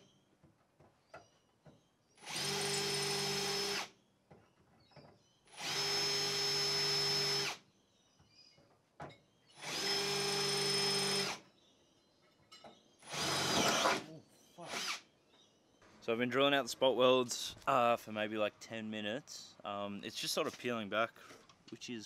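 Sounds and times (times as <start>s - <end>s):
power drill drilling sheet steel: 2.2s - 3.9s, 5.5s - 7.6s, 9.6s - 11.4s, 13.0s - 14.0s, 14.6s - 15.0s.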